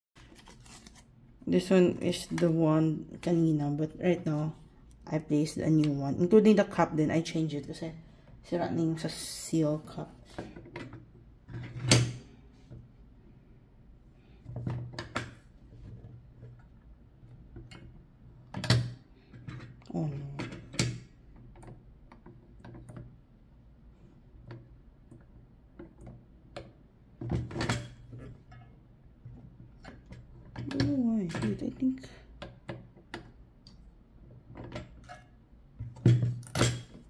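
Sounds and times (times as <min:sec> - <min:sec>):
plastic parts knocking and clacking: 0:17.5 - 0:23.1.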